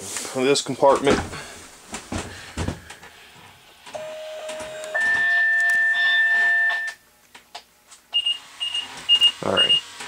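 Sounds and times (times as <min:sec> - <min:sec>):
short high beeps: 0:04.0 - 0:07.0.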